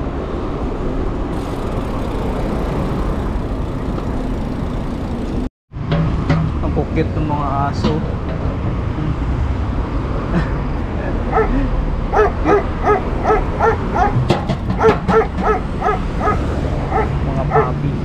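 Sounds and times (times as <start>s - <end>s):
dogs barking in high yaps: 11.3s - 11.5s, 12.1s - 17.8s.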